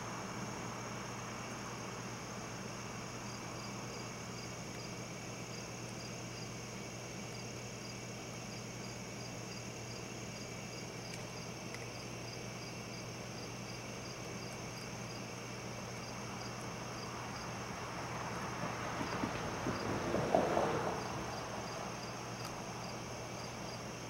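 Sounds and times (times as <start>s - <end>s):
crickets chirping: 0.0s - 24.0s
high-pitched insect trill: 21.0s - 24.0s.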